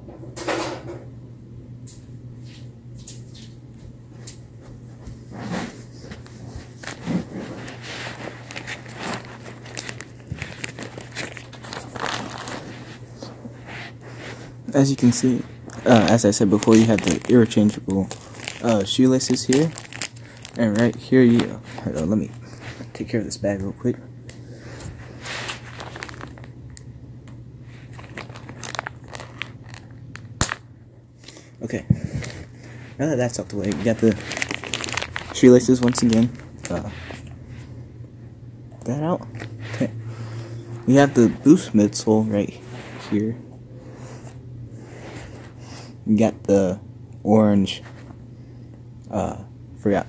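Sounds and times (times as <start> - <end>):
low electrical hum: 0.0 - 50.0
plastic bag crinkling: 6.4 - 24.0, 24.6 - 26.9, 27.7 - 37.4.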